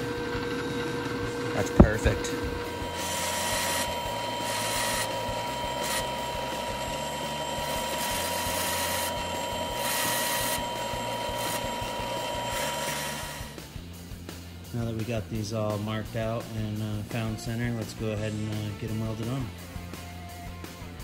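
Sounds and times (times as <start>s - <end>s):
bit cutting into wood: 0.0s - 13.6s
drill press whine: 0.0s - 13.7s.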